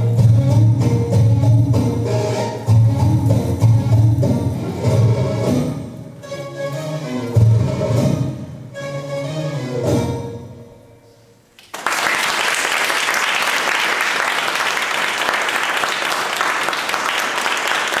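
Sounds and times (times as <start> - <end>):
belly-dance music: 0.0 - 8.4
applause: 11.6 - 18.0.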